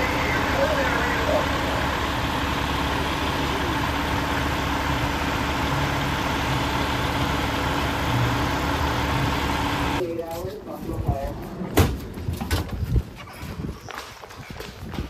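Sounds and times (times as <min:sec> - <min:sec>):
diesel engine idling: 0:00.0 - 0:10.3.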